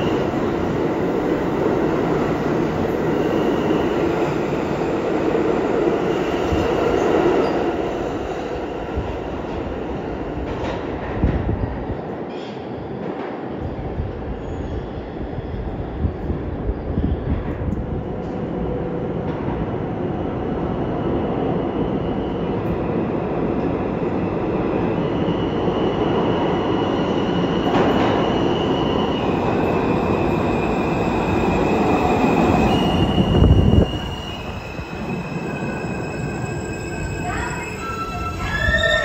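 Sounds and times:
subway train rumble: 0.0s - 39.0s
train wheels squealing: 2.8s - 4.7s, 6.0s - 9.0s, 11.5s - 13.0s, 14.2s - 17.5s, 24.0s - 39.0s.

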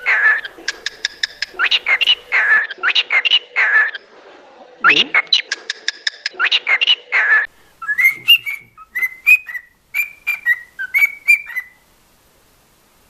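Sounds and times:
cockatiel whistling chirpy notes: 7.8s - 11.8s.

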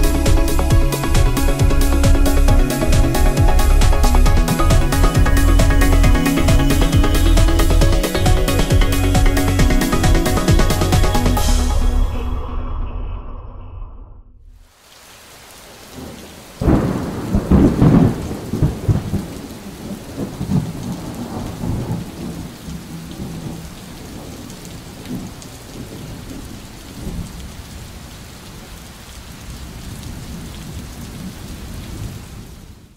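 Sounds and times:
steady rain: 0.0s - 12.0s, 14.5s - 32.9s
rolling thunderclap: 16.0s - 27.4s.

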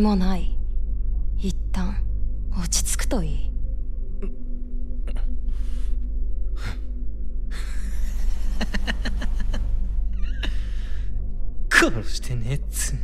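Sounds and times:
low steady drone: 0.0s - 13.0s
man laughing derisively: 7.6s - 10.6s.

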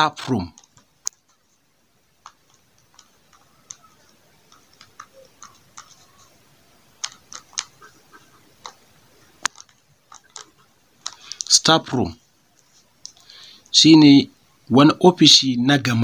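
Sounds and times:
pen scratching on paper: 2.2s - 6.4s.

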